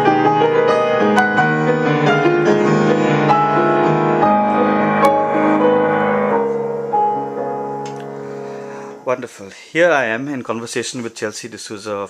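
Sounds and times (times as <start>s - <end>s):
solo piano playing: 0.0s - 9.2s.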